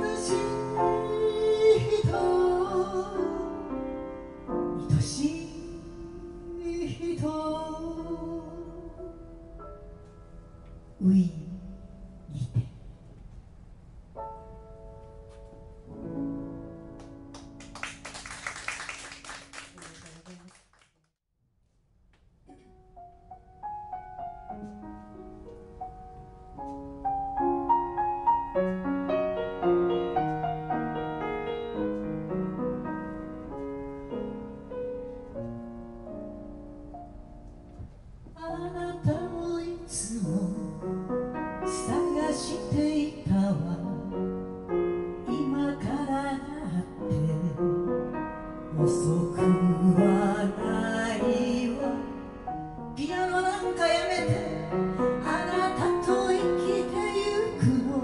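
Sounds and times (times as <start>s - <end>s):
woman singing: 0.0s - 3.6s, 4.8s - 9.0s, 38.4s - 40.9s, 41.7s - 44.2s, 45.2s - 47.7s, 48.7s - 52.1s, 53.0s - 58.0s
grand piano playing: 0.0s - 18.1s, 22.5s - 58.0s
applause: 17.0s - 21.1s.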